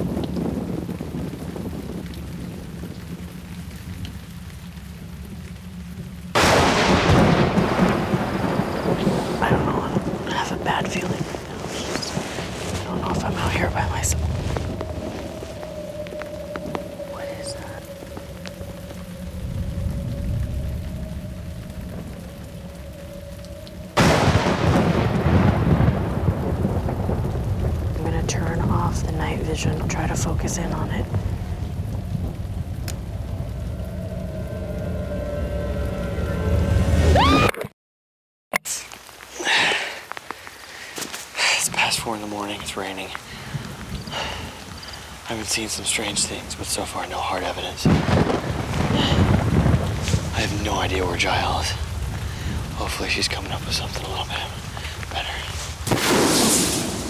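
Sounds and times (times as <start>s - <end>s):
wind on microphone: 0.0s - 4.5s, 7.2s - 37.4s
rain hissing: 0.0s - 37.4s, 38.6s - 57.0s
thunder rumbling: 0.0s - 37.5s, 41.4s - 57.0s.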